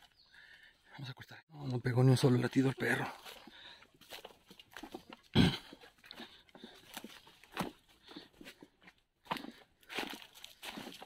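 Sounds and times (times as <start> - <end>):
footsteps crunching through dry leaves: 2.2 - 5.3, 9.3 - 11.0.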